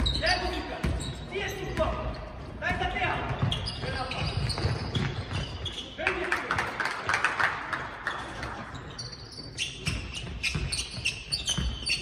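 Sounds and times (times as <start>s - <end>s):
shoes squeaking: 0.0s - 6.2s, 8.1s - 12.0s
basketball bouncing on floor: 2.6s - 5.5s.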